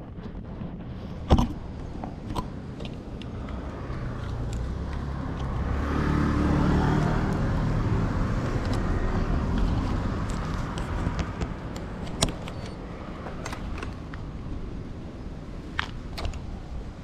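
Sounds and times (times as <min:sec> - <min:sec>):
low rumbling noise: 0:00.0 - 0:12.2.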